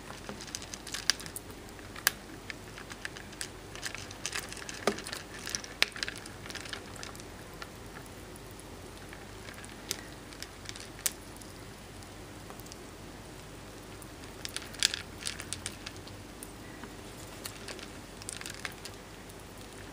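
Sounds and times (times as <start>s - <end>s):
pebbles clicking against glass: 0.0s - 8.1s, 9.0s - 11.5s, 14.2s - 16.2s, 17.2s - 19.9s.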